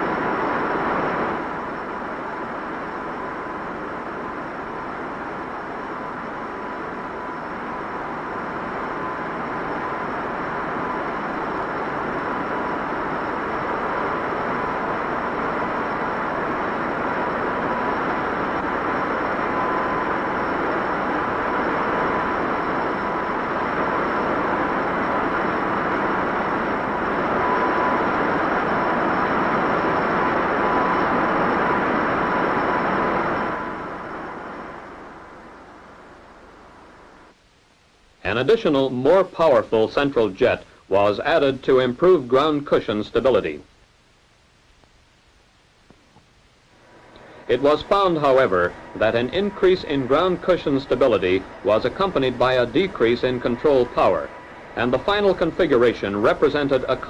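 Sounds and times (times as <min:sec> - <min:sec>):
aircraft fan rushing roar: 0:00.0 - 0:43.6, 0:46.7 - 0:57.0
thin steady whine: 0:00.0 - 0:57.0.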